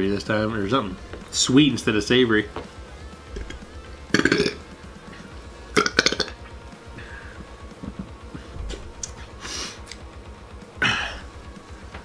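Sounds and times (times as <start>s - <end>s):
man burping: 3.4s - 4.6s, 5.7s - 6.4s, 10.8s - 11.3s
breathy hiss: 6.8s - 7.6s, 9.3s - 10.0s.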